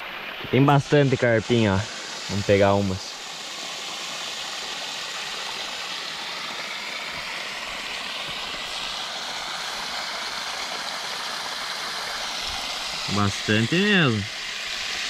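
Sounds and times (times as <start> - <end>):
running water rushing: 0.0 - 15.0.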